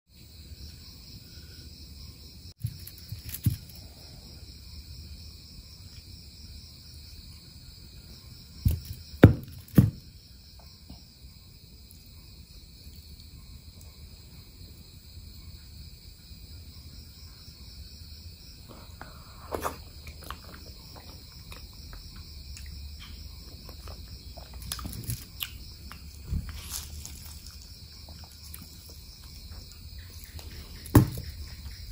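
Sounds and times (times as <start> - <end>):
insects chirring: 0.1 - 31.9
knocks: 8.6 - 10.1, 30.9 - 31.4.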